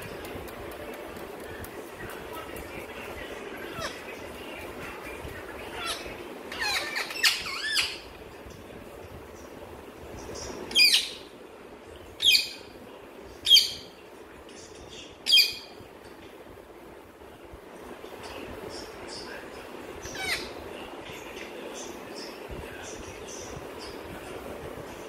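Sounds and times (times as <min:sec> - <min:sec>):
parakeets calling: 0:03.5 - 0:08.2, 0:10.3 - 0:11.4, 0:12.2 - 0:12.7, 0:15.2 - 0:15.7, 0:20.0 - 0:20.6.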